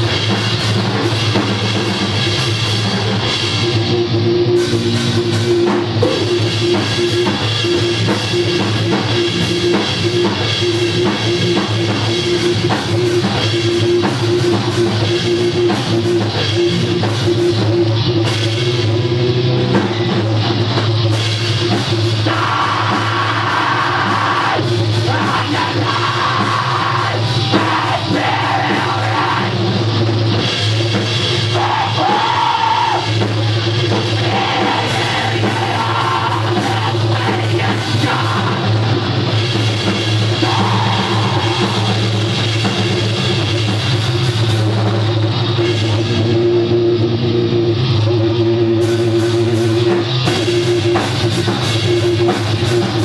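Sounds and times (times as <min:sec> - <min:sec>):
bass guitar: 0:00.0 - 0:53.0
drum kit: 0:00.0 - 0:53.0
electric guitars: 0:00.0 - 0:53.0
person singing: 0:22.2 - 0:29.6, 0:31.5 - 0:33.2, 0:34.0 - 0:39.0, 0:40.3 - 0:42.1.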